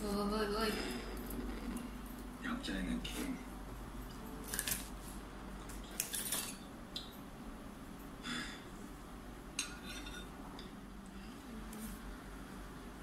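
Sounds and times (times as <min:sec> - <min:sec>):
cutlery clinking on ceramic bowl: 0:09.6 - 0:10.3.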